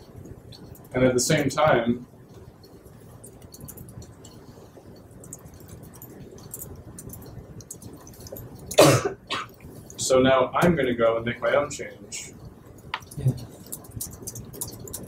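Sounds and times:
laptop keyboard typing: 0:00.0 - 0:08.8, 0:12.4 - 0:15.0.

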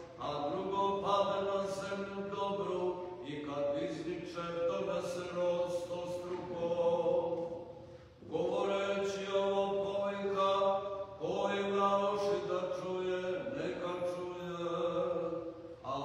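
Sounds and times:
liturgical chant: 0:00.0 - 0:16.0.

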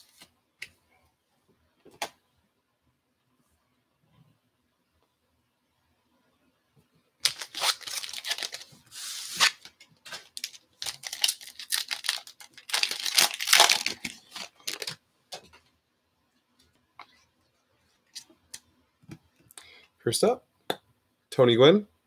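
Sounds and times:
foil wrapper crinkling and tearing: 0:07.2 - 0:15.0.

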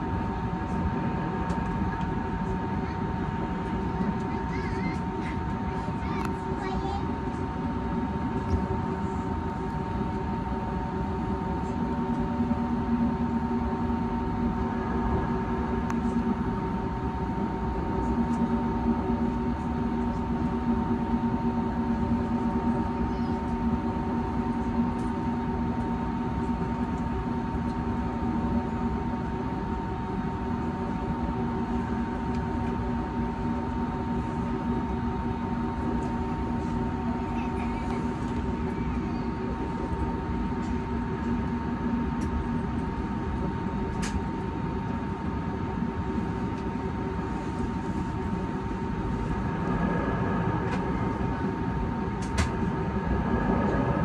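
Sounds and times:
aircraft cabin engine drone: 0:00.0 - 0:54.0
low hum: 0:07.7 - 0:28.6, 0:46.0 - 0:54.0
high whine: 0:46.9 - 0:54.0.

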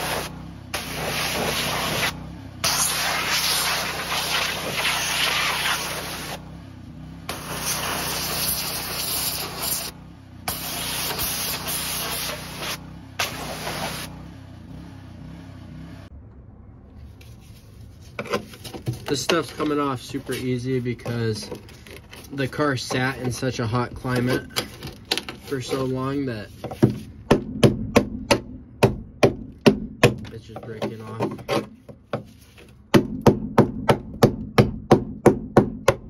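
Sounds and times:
pressure washer spraying water: 0:00.0 - 0:06.4, 0:07.3 - 0:14.1.

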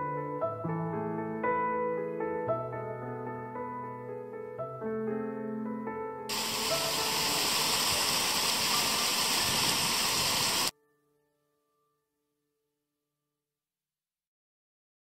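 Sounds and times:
piano music: 0:00.0 - 0:08.8
water pouring into a pool: 0:06.3 - 0:10.7.

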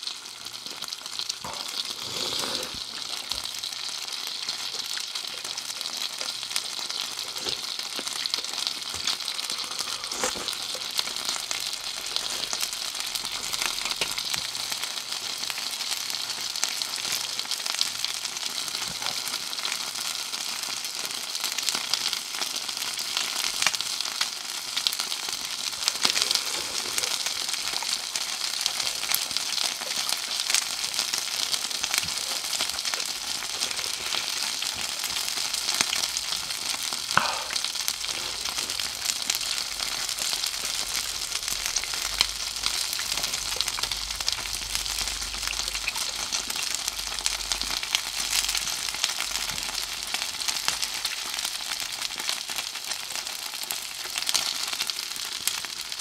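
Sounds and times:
skewers sizzling with crackles: 0:00.0 - 0:56.0.

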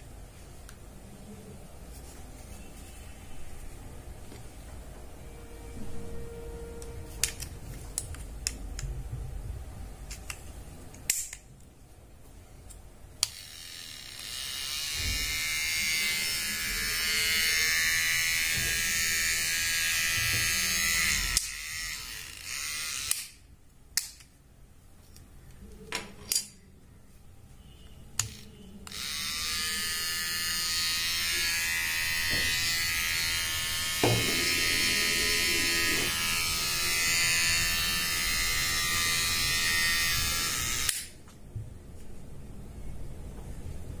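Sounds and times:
hair trimmer buzzing: 0:13.2 - 0:23.4, 0:28.3 - 0:41.1.

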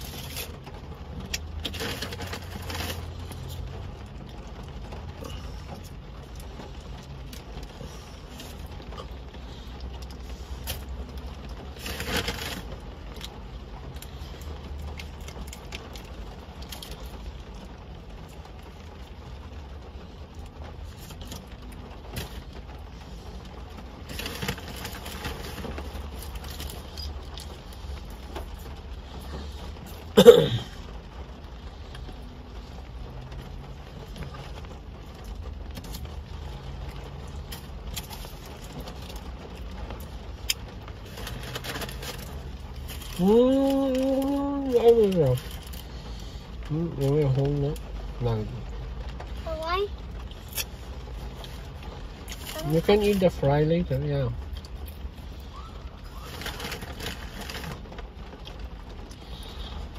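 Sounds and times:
car interior hum: 0:00.0 - 0:59.9
child's voice: 0:49.4 - 0:50.0, 0:52.5 - 0:53.0.

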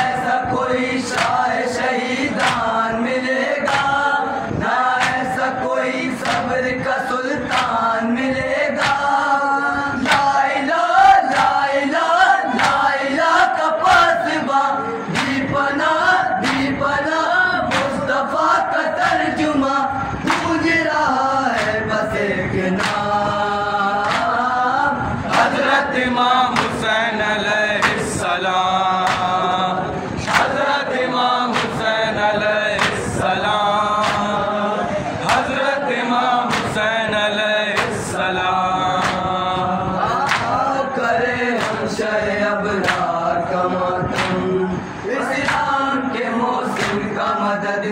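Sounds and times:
men chanting in unison: 0:00.0 - 0:47.9
chest-beating slaps: 0:02.4 - 0:02.7, 0:03.7 - 0:04.0, 0:05.0 - 0:05.4, 0:06.2 - 0:06.5, 0:07.5 - 0:07.8, 0:16.4 - 0:16.7, 0:20.3 - 0:20.5, 0:22.8 - 0:23.0, 0:24.0 - 0:24.3, 0:26.5 - 0:26.8, 0:29.0 - 0:29.4, 0:30.2 - 0:30.6, 0:32.8 - 0:33.1, 0:34.0 - 0:34.4, 0:36.5 - 0:36.8, 0:39.0 - 0:39.3, 0:44.1 - 0:44.4.

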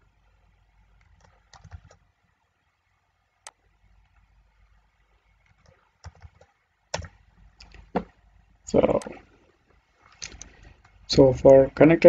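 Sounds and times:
faint keyboard keystrokes: 0:01.0 - 0:02.0.

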